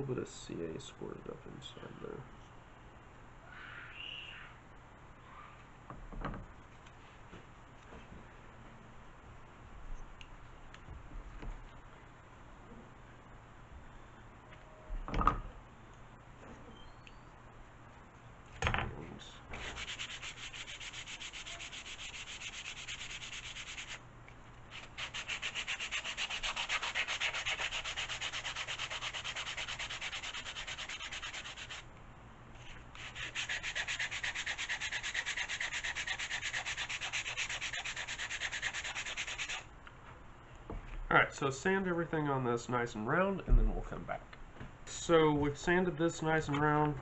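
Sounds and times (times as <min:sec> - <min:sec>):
sanding block rubbing wood: 0:19.6 - 0:24.0, 0:24.7 - 0:31.8, 0:33.0 - 0:39.6.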